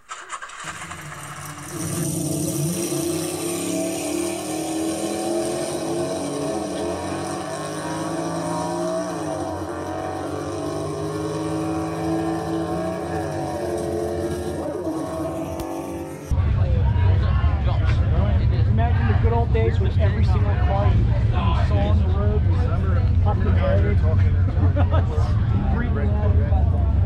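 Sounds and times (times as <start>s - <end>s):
car engine running: 0.0s - 16.4s.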